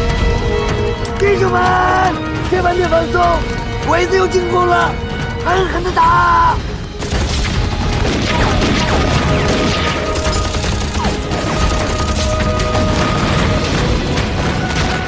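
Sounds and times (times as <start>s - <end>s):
dramatic background music: 0.0s - 15.0s
explosions and crashes: 6.6s - 15.0s
rapid gunfire: 6.7s - 15.0s.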